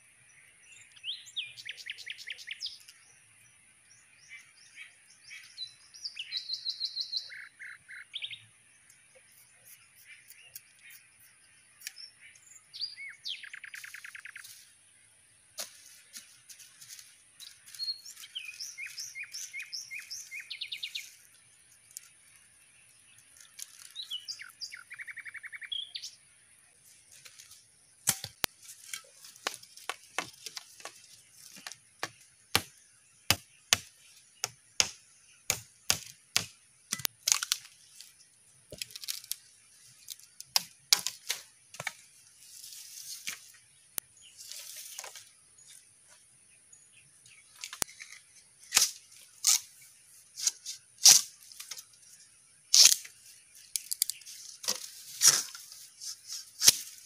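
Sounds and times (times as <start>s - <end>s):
bird calling: 4.2s - 8.4s, 9.3s - 14.6s, 23.8s - 26.2s
sharp cracks and snaps: 27.2s - 38.1s, 38.7s - 39.4s, 50.4s - 51.8s, 52.7s - 55.6s.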